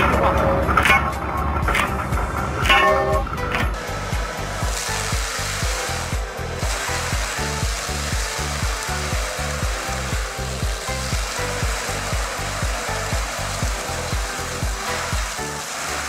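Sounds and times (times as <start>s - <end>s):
background music with bass beat: 0.0s - 16.0s
forestry mulcher grinding stump: 0.0s - 16.0s.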